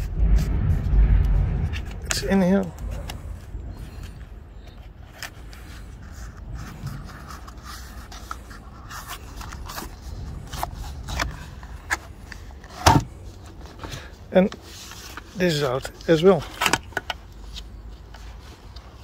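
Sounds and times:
sharp knock: 0:00.0 - 0:04.0.

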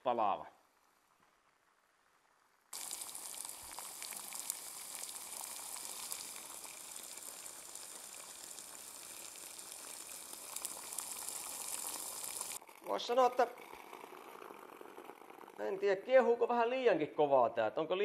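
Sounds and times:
water boiling hard in pot: 0:00.6 - 0:16.5.

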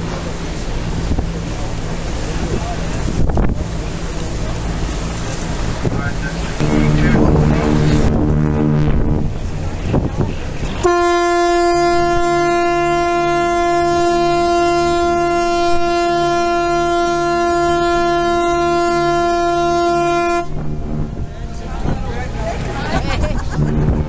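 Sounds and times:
ship's horn long blast: 0:00.0 - 0:24.0.

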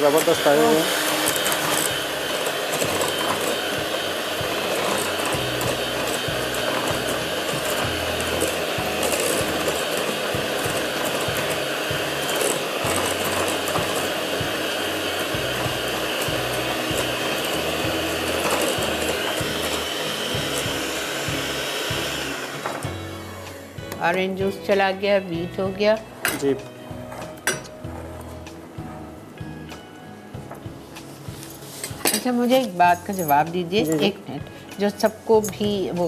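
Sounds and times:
electric hand mixer whisking batter: 0:00.0 - 0:28.6.

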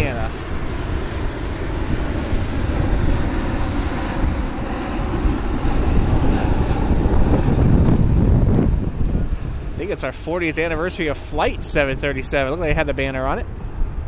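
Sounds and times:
jet engine rumble: 0:00.0 - 0:14.0.

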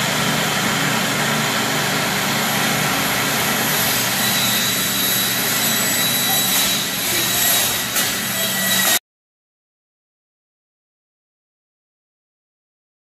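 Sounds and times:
circular saw cutting plastic: 0:03.3 - 0:09.0.

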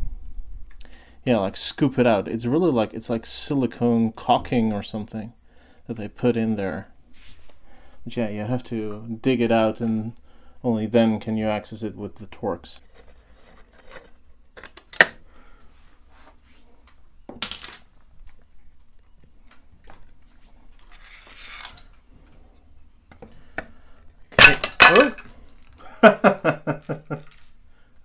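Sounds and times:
faint scrape: 0:07.1 - 0:07.7.

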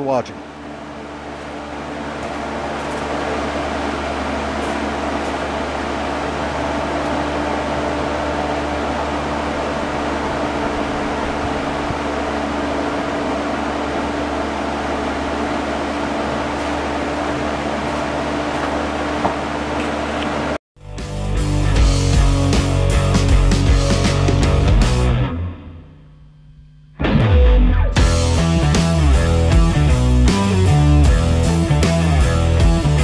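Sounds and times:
fan air rushing: 0:00.0 - 0:20.6
fan motor hum: 0:00.0 - 0:20.6, 0:28.0 - 0:33.0.

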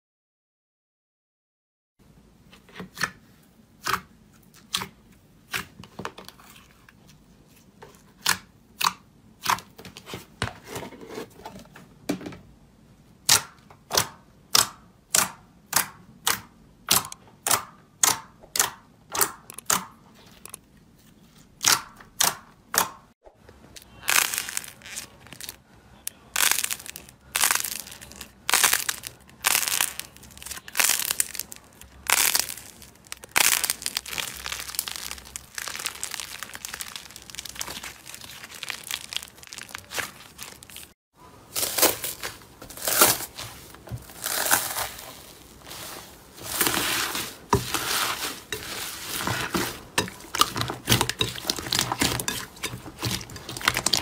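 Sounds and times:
slime crackling when squeezed: 0:23.8 - 0:41.0
slime clicking and popping: 0:26.4 - 0:40.8.

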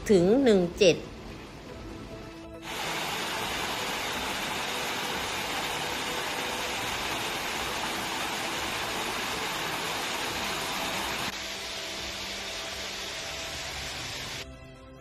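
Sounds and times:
waterfall rushing over rocks: 0:02.6 - 0:14.4.

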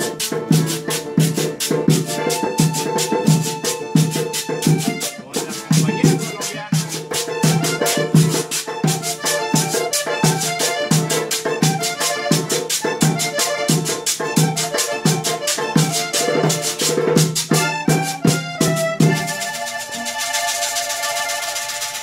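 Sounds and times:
low drum beat: 0:00.0 - 0:09.0
acoustic guitar: 0:00.0 - 0:22.0
button accordion melody: 0:00.0 - 0:22.0
tube shaker rhythm: 0:00.0 - 0:22.0.

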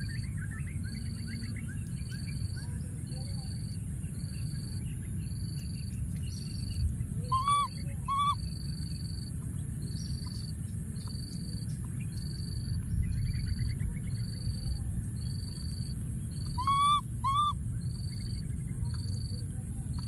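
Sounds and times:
insects singing in shrill pulses: 0:04.2 - 0:09.3, 0:09.9 - 0:20.0
baby monkey calling: 0:07.2 - 0:08.5, 0:16.3 - 0:17.6.

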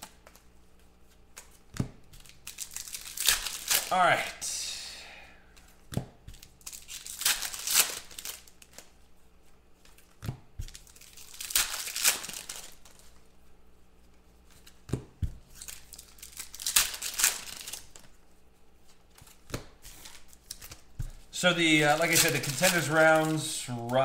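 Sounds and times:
foil packs tearing and crinkling: 0:02.1 - 0:04.0, 0:06.4 - 0:08.9, 0:10.7 - 0:13.2, 0:15.5 - 0:18.1, 0:19.2 - 0:24.0.

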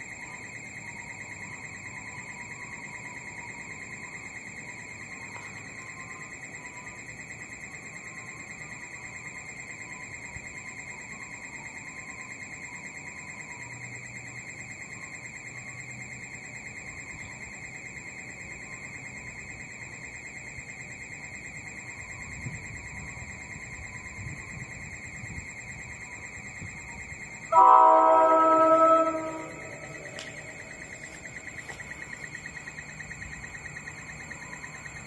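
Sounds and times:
locomotive horn: 0:27.5 - 0:31.3
pulsing electronic tone: 0:27.5 - 0:31.8
train rumbling: 0:27.5 - 0:32.2.

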